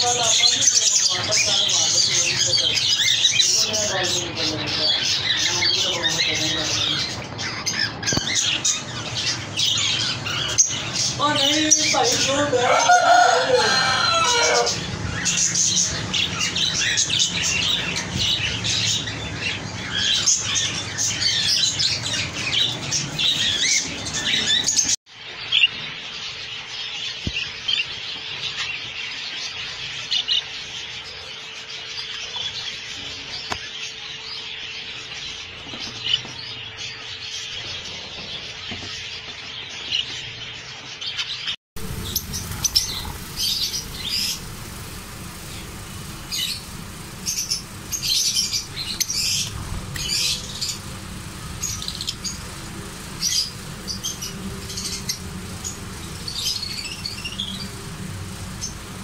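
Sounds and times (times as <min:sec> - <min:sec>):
budgerigars chirping: 0:00.0 - 0:59.0
lovebirds chirping: 0:00.0 - 0:59.0
faint steady hum: 0:41.8 - 0:59.0.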